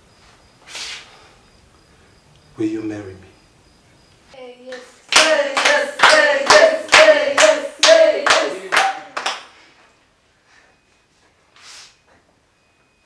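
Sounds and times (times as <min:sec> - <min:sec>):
group clapping in time: 0:04.7 - 0:09.6
voices cheering: 0:05.1 - 0:09.3.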